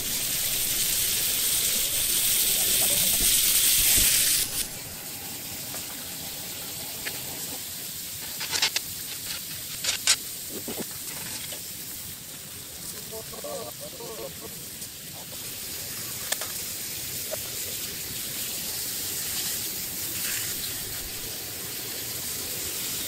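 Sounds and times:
loud hiss: 0.0 - 23.0
sauce and meat sizzling on hot plate: 0.0 - 23.0.

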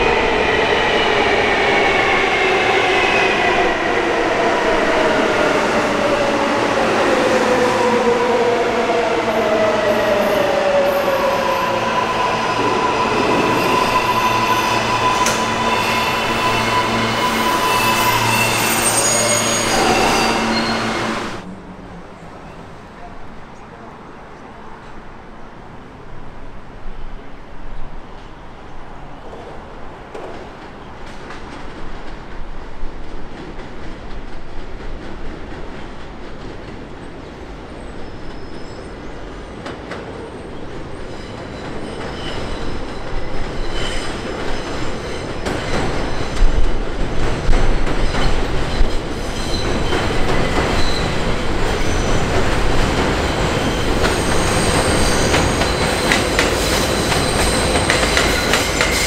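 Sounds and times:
elevated train rumbling: 0.0 - 59.0
train wheels squealing: 10.0 - 21.0, 37.8 - 39.2, 40.4 - 46.7, 47.8 - 59.0.

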